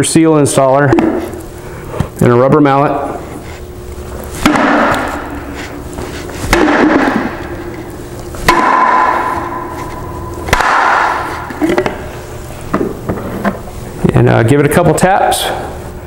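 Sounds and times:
rubber mallet striking plastic: 0:04.4 - 0:05.2.

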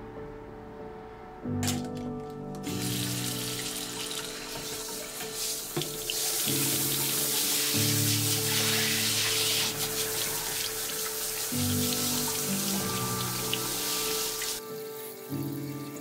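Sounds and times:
background music: 0:00.0 - 0:16.0
tap running into basin: 0:02.6 - 0:14.6.

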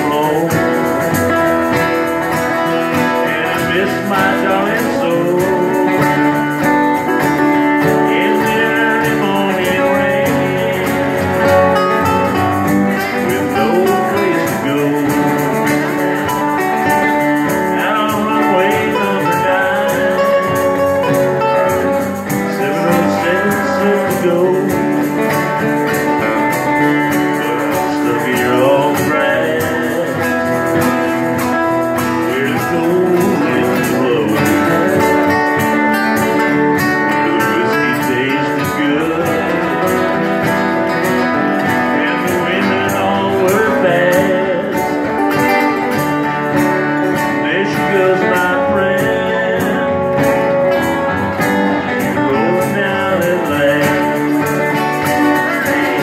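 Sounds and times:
acoustic guitar: 0:00.0 - 0:56.0
man singing: 0:00.0 - 0:56.0.

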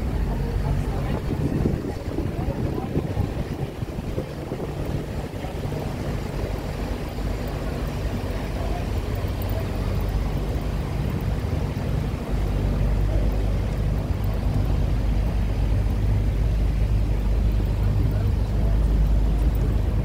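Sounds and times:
road train engine humming: 0:00.0 - 0:20.0
wheels rumbling on cobbles: 0:00.0 - 0:20.0.

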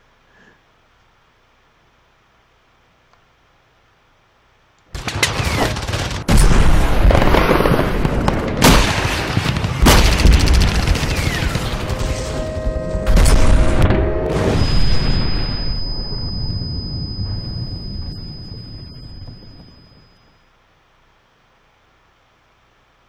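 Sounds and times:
gunfire: 0:05.0 - 0:12.4
booming impacts: 0:06.2 - 0:19.4
cinematic music: 0:11.6 - 0:15.6
high steady tone: 0:12.0 - 0:20.5.

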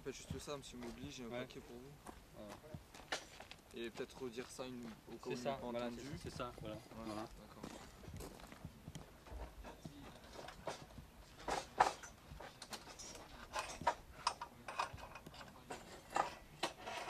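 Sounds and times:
metal rails clicking and knocking: 0:09.2 - 0:17.0.

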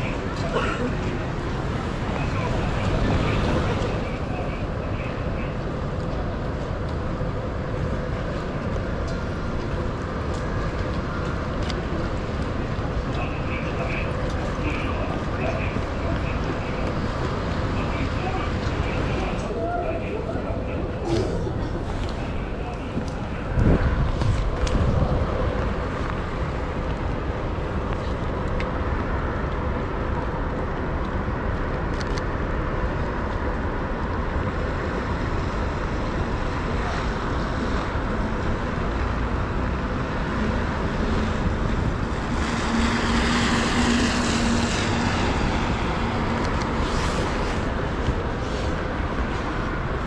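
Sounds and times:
heavy rain: 0:00.0 - 0:50.0
traffic on wet road: 0:00.0 - 0:50.0
tyres hissing on wet road: 0:34.2 - 0:50.0.

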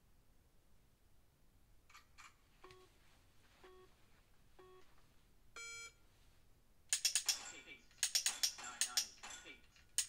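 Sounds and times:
phone app beeps: 0:05.6 - 0:06.0.

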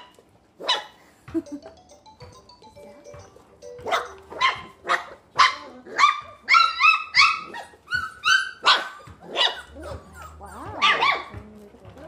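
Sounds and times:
puppy yapping: 0:03.9 - 0:11.8.

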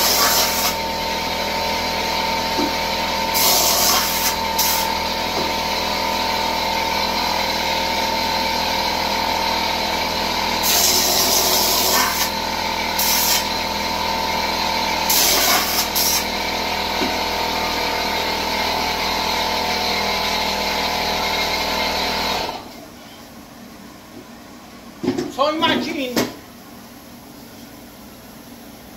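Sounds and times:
spray gun hissing bursts: 0:00.0 - 0:00.8, 0:03.3 - 0:04.9, 0:13.0 - 0:13.5, 0:15.1 - 0:16.3
air compressor running: 0:00.0 - 0:23.0.

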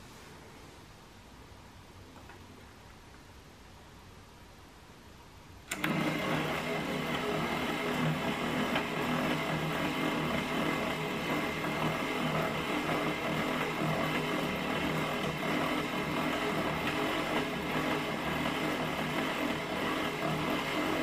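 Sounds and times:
motor switch click: 0:05.7 - 0:06.0.

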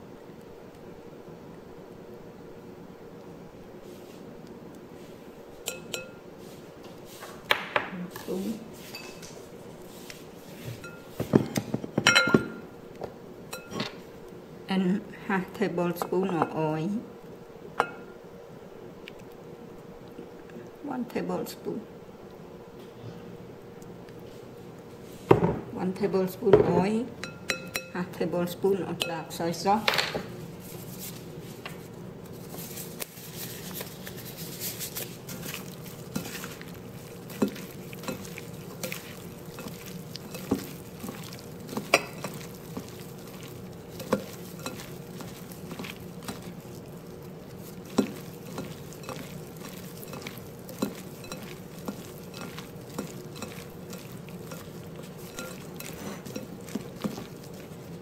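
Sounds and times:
steady low hum: 0:00.0 - 0:58.0
noodles mixing in bowl: 0:32.2 - 0:58.0.

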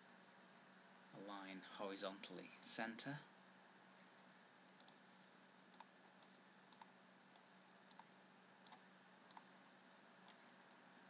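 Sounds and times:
faint steady hum: 0:00.0 - 0:11.0
computer mouse clicks: 0:04.8 - 0:05.0, 0:05.7 - 0:09.5, 0:10.2 - 0:10.4.

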